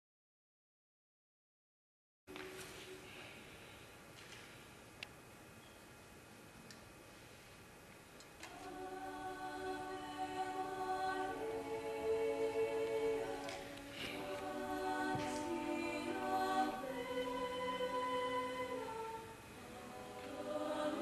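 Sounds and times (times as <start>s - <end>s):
youth choir singing a cappella: 8.4s - 21.0s.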